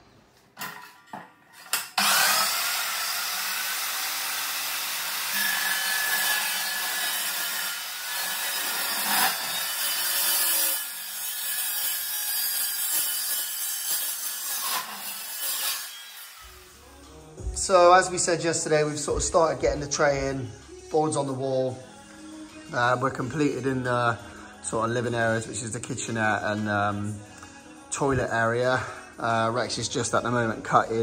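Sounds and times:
chop saw grinding through steel: 0:01.6 - 0:16.6.

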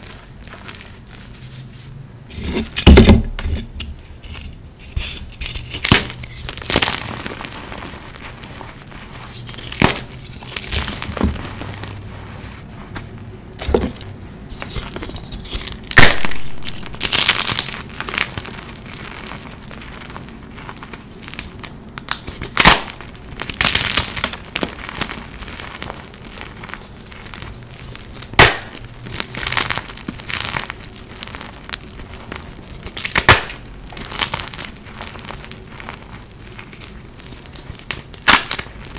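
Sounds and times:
chalk crunching by hand: 0:00.0 - 0:13.1
chalk pieces cracking: 0:02.3 - 0:12.0, 0:13.6 - 0:38.9.

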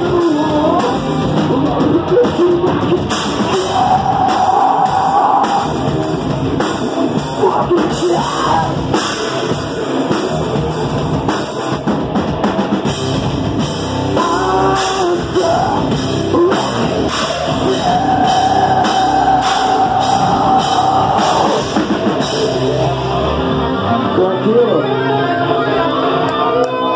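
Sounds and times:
hard rock band playing live: 0:00.0 - 0:26.9.

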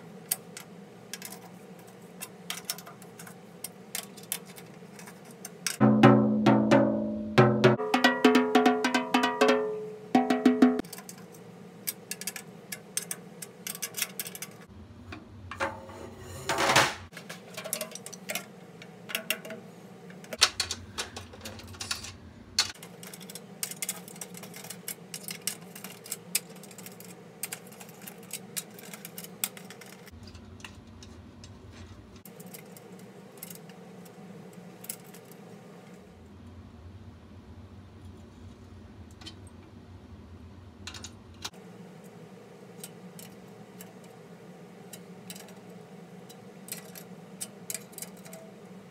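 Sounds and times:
clicks and taps handling drum: 0:04.2 - 0:11.1.

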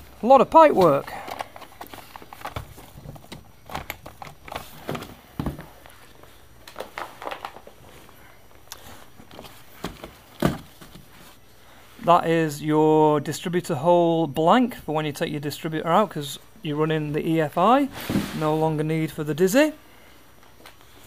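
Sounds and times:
knocks on cardboard and metal: 0:09.8 - 0:11.0
hose rustling in cardboard: 0:17.9 - 0:18.7.

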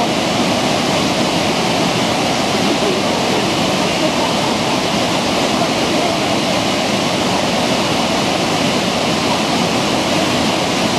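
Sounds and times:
waterfall and rapids rushing: 0:00.0 - 0:10.9.

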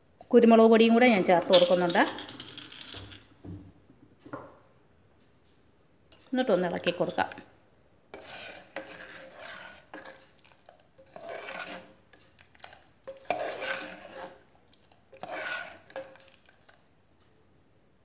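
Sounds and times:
spoon stirring thick soup: 0:06.1 - 0:07.5, 0:08.1 - 0:16.9.

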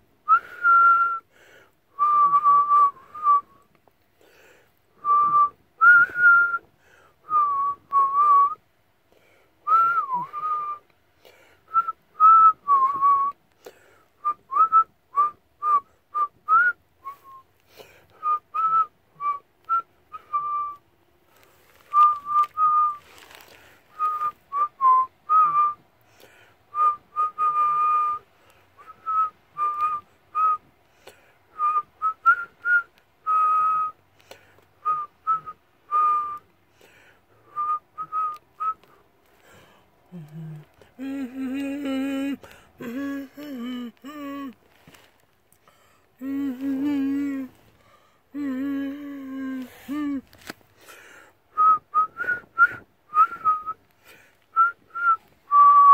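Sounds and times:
person whistling a tune: 0:00.3 - 0:01.3, 0:01.9 - 0:03.7, 0:05.0 - 0:08.6, 0:09.6 - 0:10.9, 0:11.7 - 0:13.4, 0:14.2 - 0:20.8, 0:21.8 - 0:23.2, 0:23.9 - 0:25.8, 0:26.7 - 0:28.2, 0:28.8 - 0:30.7, 0:31.5 - 0:34.0, 0:34.8 - 0:36.5, 0:37.4 - 0:39.0, 0:40.1 - 0:44.6, 0:46.2 - 0:47.6, 0:48.3 - 0:50.2, 0:51.5 - 0:53.8, 0:54.5 - 0:55.9.

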